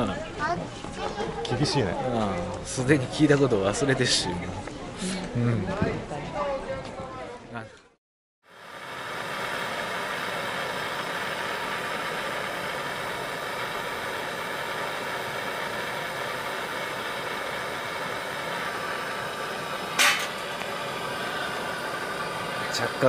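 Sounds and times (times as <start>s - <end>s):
gas torch hissing: 8.5s - 23.0s
sharp loud noise: 19.2s - 20.6s.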